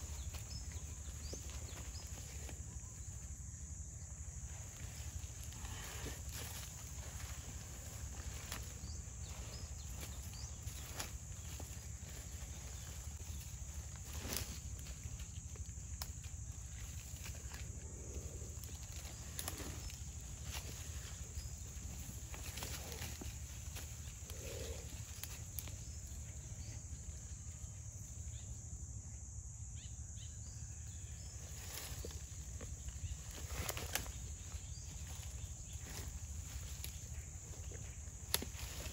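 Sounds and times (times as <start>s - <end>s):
high insect drone: 0.0s - 38.9s
dry twigs and leaves cracking: 5.0s - 17.7s, 18.6s - 25.8s, 33.3s - 38.9s.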